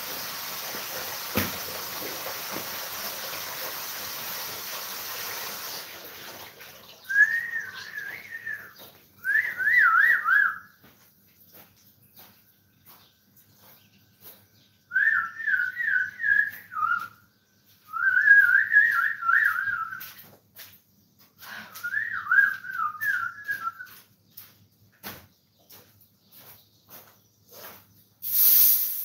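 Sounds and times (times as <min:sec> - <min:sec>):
wavering whistling: 0:07.1 - 0:10.7.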